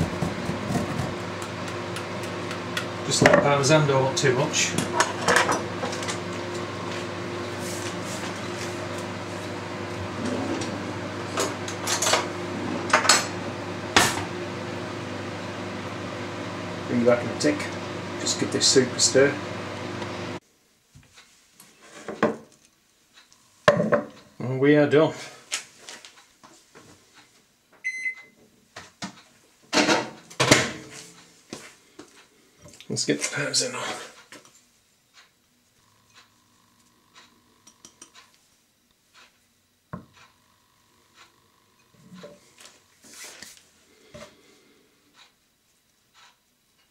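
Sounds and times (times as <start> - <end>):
steady low hum: 35.6 - 43.0.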